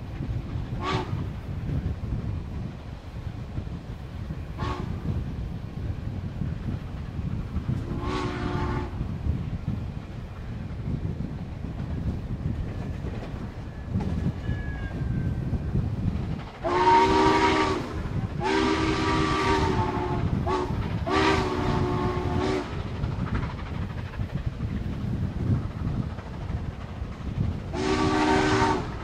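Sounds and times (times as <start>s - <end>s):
moving train rumble: 0.0s - 29.0s
wind on microphone: 0.0s - 29.0s
steam chime whistle blasts: 16.6s - 22.7s.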